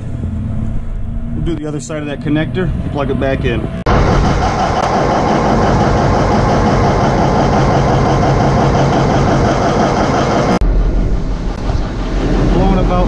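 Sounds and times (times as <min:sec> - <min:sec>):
diesel engine running loudly: 0:03.9 - 0:13.0.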